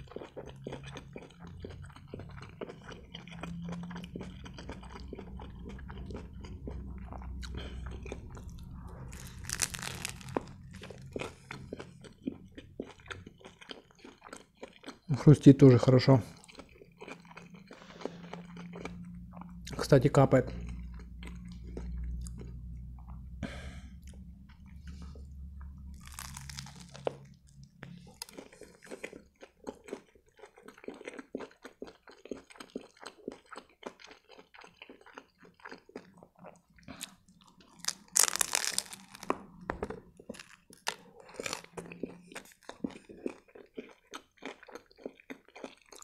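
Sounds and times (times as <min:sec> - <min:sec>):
close chewing and mouth sounds: 0:00.0 - 0:46.0
crunching of wrap: 0:09.1 - 0:11.2, 0:26.0 - 0:27.3, 0:37.8 - 0:39.4.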